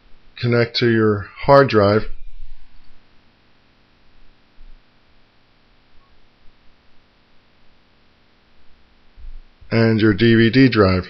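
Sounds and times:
low mains hum: 0.0 - 11.0
faint low bumps: 4.0 - 5.1, 8.5 - 10.5.

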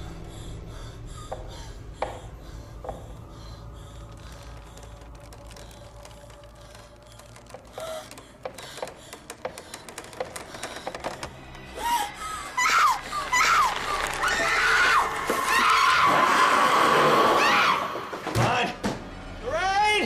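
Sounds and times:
tense horror film music: 0.0 - 20.0
sharp knocks and creaks: 4.4 - 11.7
woman screaming: 11.8 - 18.0.

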